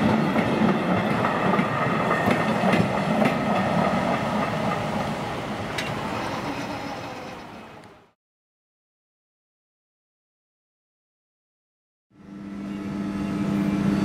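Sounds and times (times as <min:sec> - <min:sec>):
wheels clacking over rail joints: 0:00.0 - 0:06.8
train coaches rolling on track: 0:00.0 - 0:08.1.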